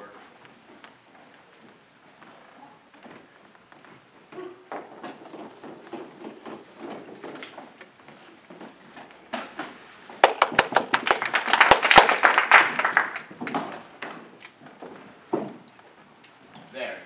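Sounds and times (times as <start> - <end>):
rapid sharp claps and knocks: 10.1 - 14.6.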